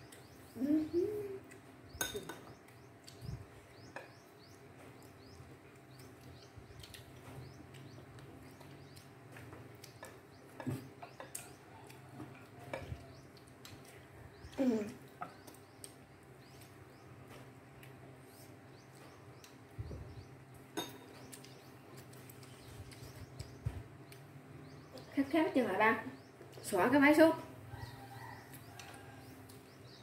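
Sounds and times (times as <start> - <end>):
person humming: 0.6 - 1.6.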